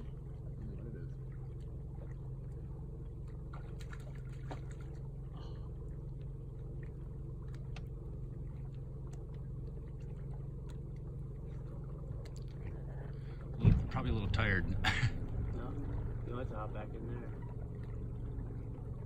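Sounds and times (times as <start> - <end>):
boat motor idling: 0.0 - 19.0
light water sounds: 0.0 - 19.0.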